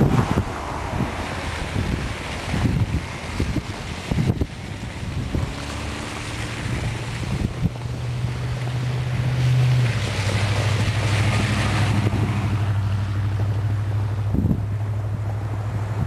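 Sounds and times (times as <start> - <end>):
wind noise hiss: 0.0 - 12.7
vehicle engine humming: 0.0 - 16.0.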